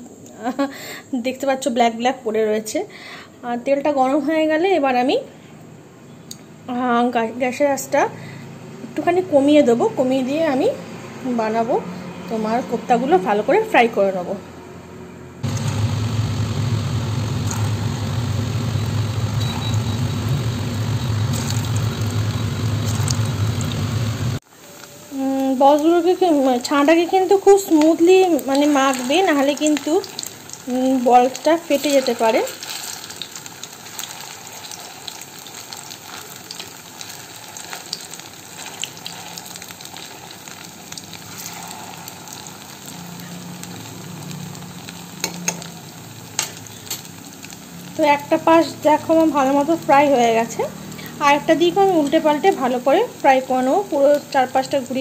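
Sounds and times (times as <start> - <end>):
steady low hum: 15.3 - 24.4
food sizzling in hot oil: 15.4 - 55.0.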